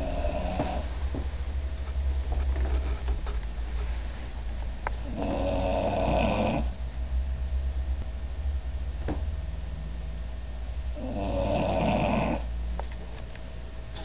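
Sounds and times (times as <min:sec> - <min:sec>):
dog snoring: 0:00.0 - 0:00.9, 0:05.0 - 0:06.8, 0:11.0 - 0:12.5
low hum: 0:00.0 - 0:05.2, 0:06.6 - 0:11.2.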